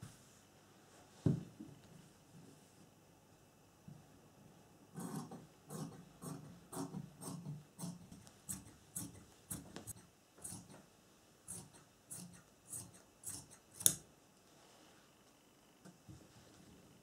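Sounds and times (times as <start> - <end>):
shears snipping fabric: 5.0 - 10.8, 11.5 - 14.0.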